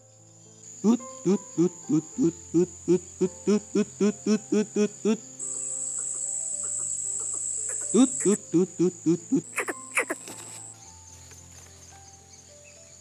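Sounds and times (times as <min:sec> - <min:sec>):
insect high buzz: 0:00.0 - 0:13.0
bird deep hoots: 0:00.8 - 0:05.3, 0:06.6 - 0:10.2.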